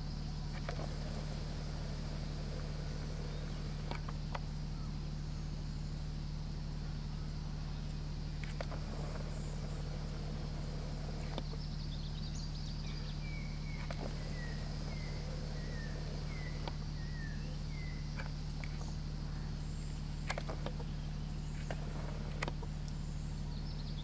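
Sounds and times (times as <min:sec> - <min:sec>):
bird chirping: 0:00.0 - 0:24.0
steady low hum: 0:00.0 - 0:24.0
faint clicks: 0:00.5 - 0:04.5, 0:07.8 - 0:11.8, 0:13.6 - 0:24.0.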